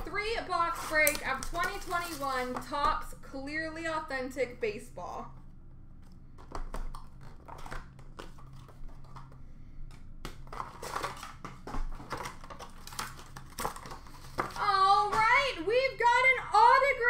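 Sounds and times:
faint steady hum: 0:00.0 - 0:17.0
plastic wrapping crinkling: 0:00.5 - 0:02.7, 0:06.4 - 0:09.4, 0:10.3 - 0:15.6.

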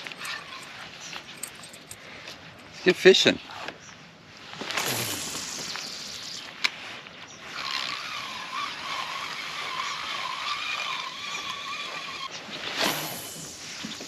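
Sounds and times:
fishing reel whirring: 0:00.0 - 0:02.0, 0:07.5 - 0:14.0.

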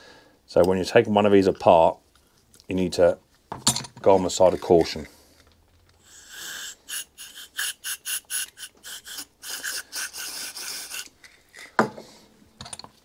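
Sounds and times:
aerosol can spraying: 0:06.1 - 0:11.2.

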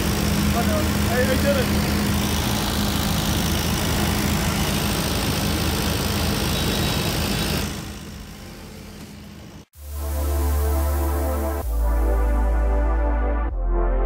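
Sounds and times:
engine idling: 0:00.0 - 0:09.7
street hum: 0:00.0 - 0:13.2.

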